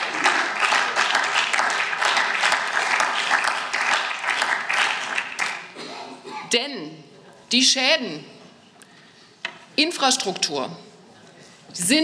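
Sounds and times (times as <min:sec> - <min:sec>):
crowd applauding: 0:00.0 - 0:05.8.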